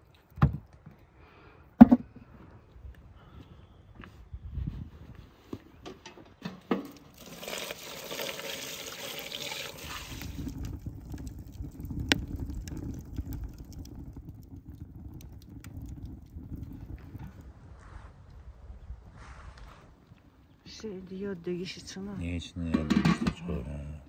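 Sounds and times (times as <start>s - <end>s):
firewood crackling and popping: 6.6s - 18.4s, 19.6s - 23.8s
metal pot knocking on stove: 22.7s - 23.5s.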